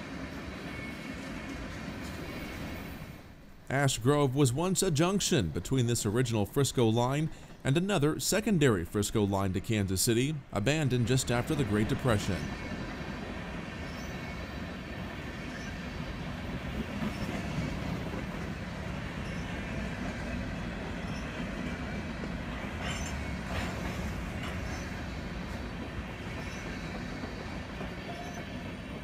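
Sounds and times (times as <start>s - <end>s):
train wheels rumbling on rails: 0.0s - 3.5s, 10.7s - 29.0s
train cars clanking: 10.8s - 29.0s.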